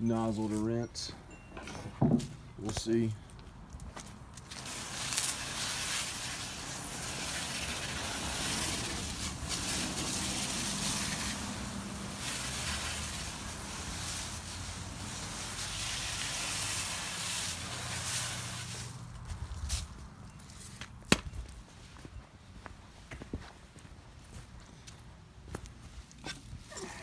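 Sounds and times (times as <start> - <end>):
spray hissing on wooden fence: 4.5 - 19.1.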